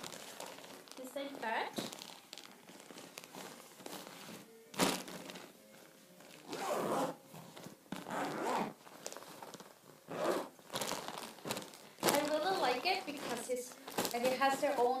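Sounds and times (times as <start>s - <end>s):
fabric rustling: 0.0s - 15.0s
zipper rasping: 6.3s - 12.3s.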